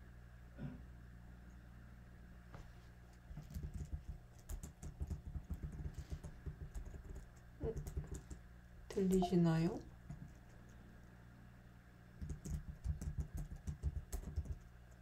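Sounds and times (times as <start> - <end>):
computer keyboard typing: 3.3 - 8.4, 12.2 - 15.0.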